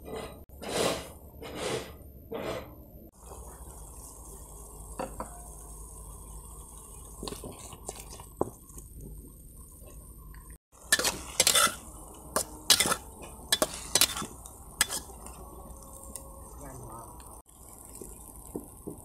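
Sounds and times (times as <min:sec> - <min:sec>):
metal spatula scraping wok: 0:00.0 - 0:02.8, 0:10.8 - 0:15.4
wok stir-fry sizzling: 0:00.1 - 0:08.7, 0:10.7 - 0:19.0.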